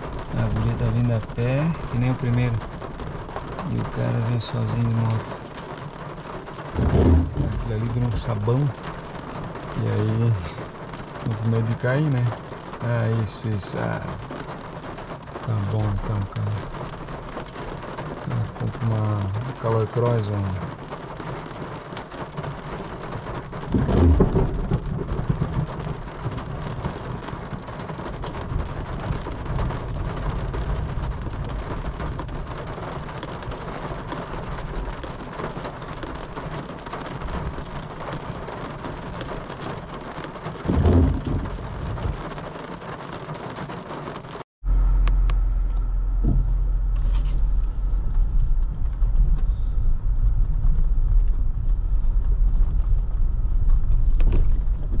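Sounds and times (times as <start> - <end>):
low rumbles: 0.0 - 42.8, 44.6 - 55.0
heavy rain pouring: 0.0 - 55.0
steady low drone: 44.6 - 55.0.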